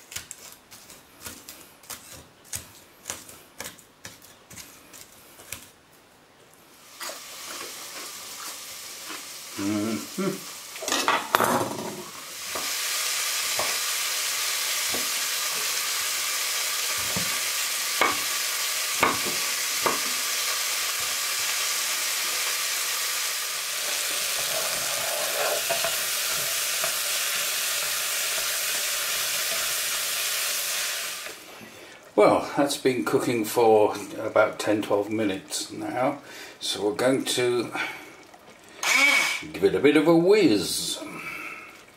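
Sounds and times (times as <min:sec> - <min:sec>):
vegetables sizzling in oil: 0:06.8 - 0:32.1, 0:38.8 - 0:39.5.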